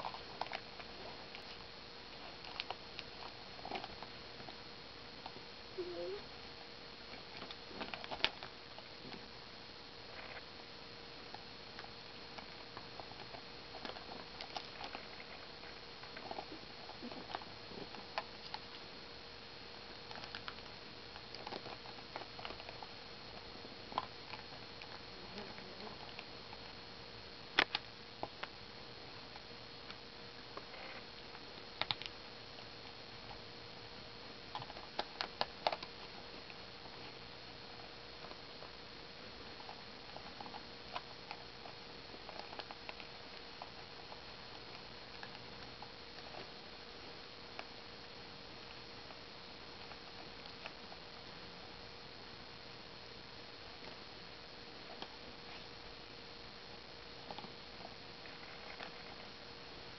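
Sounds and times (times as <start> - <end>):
puppy chewing plastic hairbrush: 20.1 - 23.0, 34.5 - 37.2.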